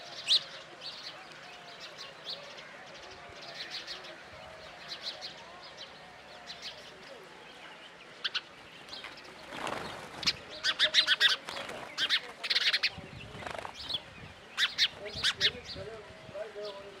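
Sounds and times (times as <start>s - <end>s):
sparrows chirping: 0.0s - 17.0s
rush of bird wings: 9.0s - 14.0s.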